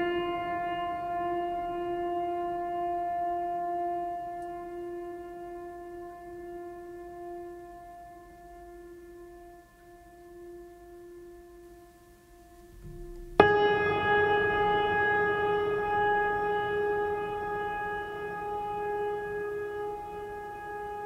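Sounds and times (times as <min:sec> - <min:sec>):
ambient music with soft held tones: 0:00.0 - 0:21.0
loud ringing chord: 0:12.5 - 0:21.0.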